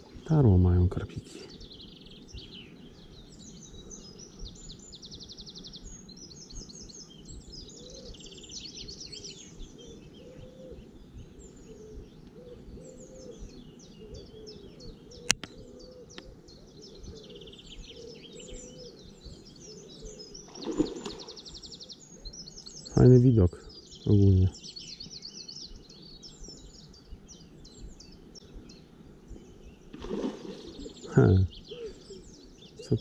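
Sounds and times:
songbirds chirping and trilling: 0.0s - 33.0s
sharp click: 15.3s - 15.6s.

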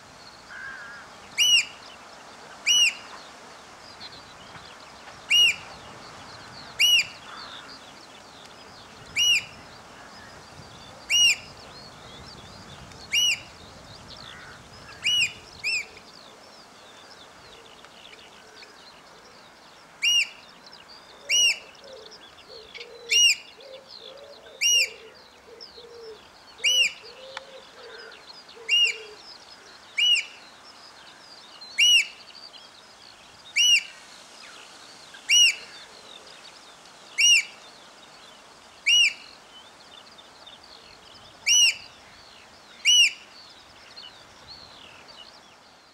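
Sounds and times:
other birds chirping: 0.4s - 45.9s
bird piping high calls: 0.5s - 1.8s, 2.7s - 3.2s, 5.3s - 5.7s, 6.7s - 7.7s, 9.1s - 9.6s, 11.1s - 11.5s, 13.1s - 13.6s, 14.2s - 16.0s, 21.3s - 29.3s, 30.0s - 30.5s, 31.7s - 32.2s, 33.5s - 34.0s, 35.2s - 35.9s, 37.2s - 37.6s, 38.8s - 39.4s, 41.4s - 42.0s, 42.8s - 43.4s.

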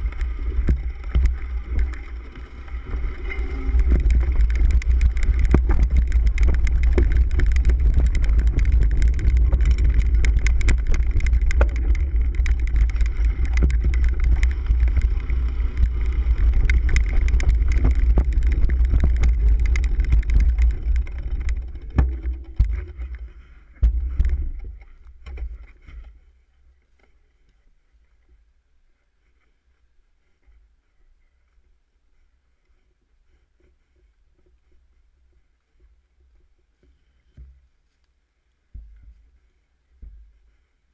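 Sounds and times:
bike rattling and knocking: 0.0s - 26.1s
wind and vibration rumble: 0.0s - 27.4s.

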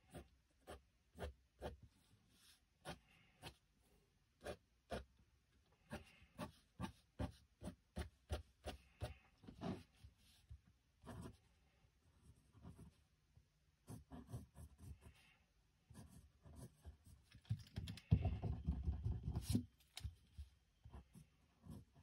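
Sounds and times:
pencil scratching on paper: 0.0s - 3.6s, 5.8s - 11.4s, 12.2s - 13.0s, 13.8s - 15.3s, 15.9s - 17.2s, 20.9s - 22.0s.

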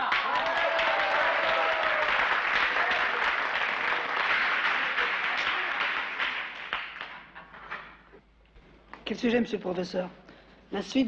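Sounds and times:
students clapping and cheering: 0.0s - 7.9s.

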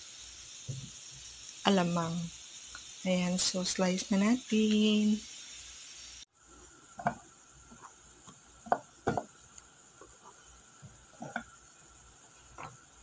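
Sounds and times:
knife knocking on cutting board: 8.7s - 9.3s.

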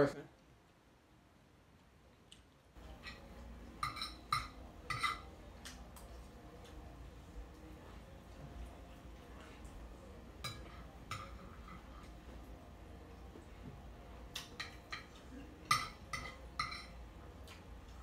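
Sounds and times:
fork clinking against a plate: 2.9s - 5.4s, 10.4s - 12.2s, 14.3s - 17.6s.

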